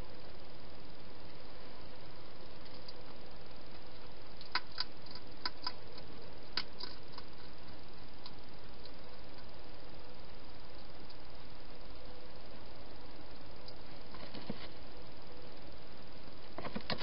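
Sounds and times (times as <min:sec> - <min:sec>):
steady background hiss: 0:00.0 - 0:17.0
hedgehog crunching food: 0:04.4 - 0:09.5.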